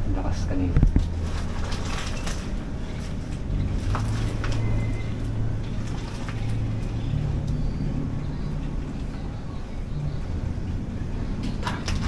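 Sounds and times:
steady low hum: 0.0s - 12.0s
roof sheets ticking and squeaking: 1.0s - 10.1s.

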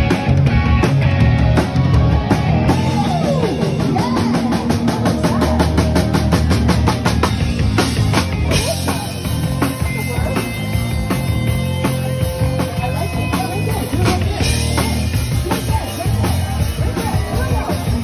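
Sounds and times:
electric guitars: 0.0s - 18.0s
fast drumming: 0.0s - 18.0s.

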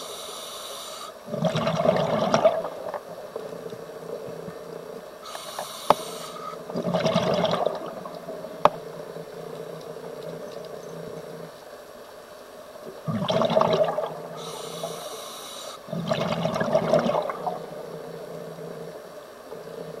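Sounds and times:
regulator inhale hiss: 0.0s - 1.4s, 4.7s - 6.7s, 14.3s - 16.0s
exhaled bubbles rushing: 1.3s - 3.2s, 6.6s - 8.6s, 13.0s - 14.4s, 15.9s - 18.1s.

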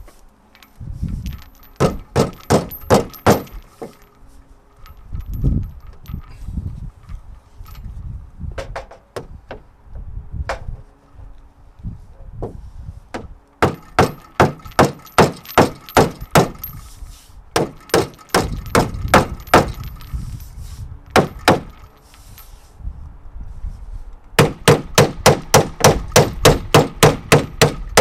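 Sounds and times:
hammer striking steel: 1.7s - 4.0s, 13.6s - 16.7s.

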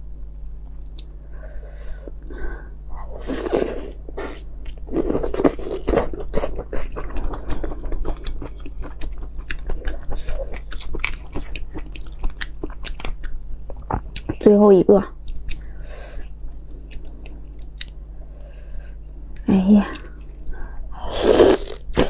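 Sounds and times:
biting and chewing: 4.6s - 14.4s.

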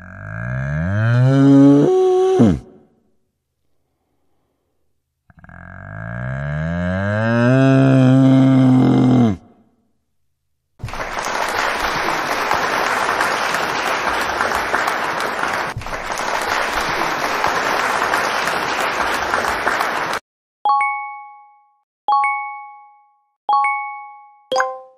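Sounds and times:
people applauding: 10.8s - 20.2s
bell-like chime: 20.7s - 24.9s.

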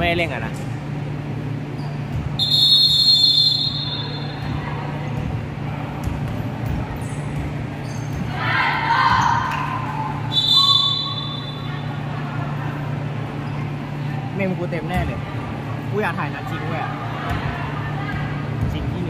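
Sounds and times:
basketball game noise: 0.0s - 19.0s
referee's whistle blast: 2.4s - 4.3s
players shouting: 8.3s - 11.6s.

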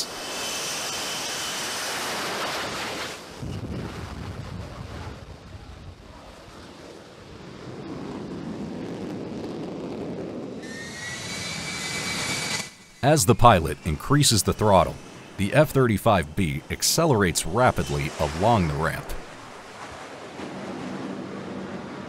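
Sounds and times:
jet engine roar with whine: 0.0s - 13.0s.

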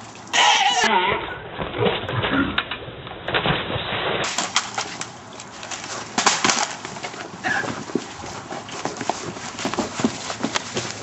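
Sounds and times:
clothes rustling: 4.2s - 11.0s
people wrestling on concrete: 4.2s - 11.0s.

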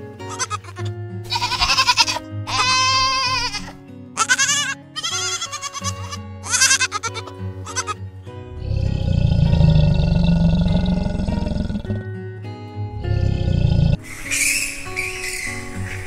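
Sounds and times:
background music: 0.0s - 16.0s
young goat bleating: 0.3s - 8.0s.

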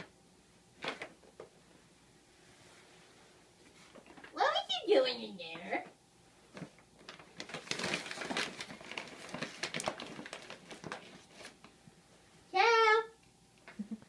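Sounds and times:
paper bag rustling: 6.5s - 11.7s.

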